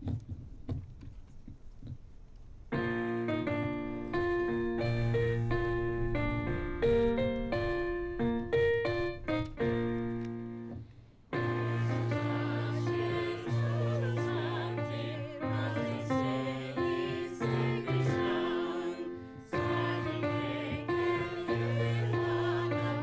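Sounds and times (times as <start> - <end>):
keyboard held notes: 2.8 - 23.0
group singing a hymn: 11.4 - 23.0.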